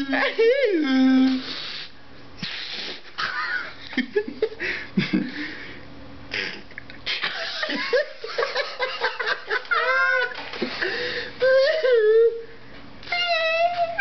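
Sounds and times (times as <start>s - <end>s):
stifled laughter: 6.3s - 11.6s.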